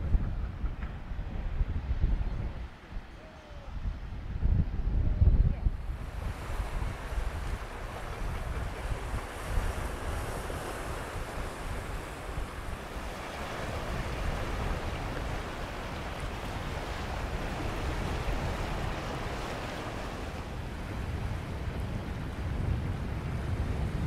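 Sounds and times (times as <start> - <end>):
wind buffeting microphone: 0.0 - 24.0
sea waves washing over rocks: 5.9 - 24.0.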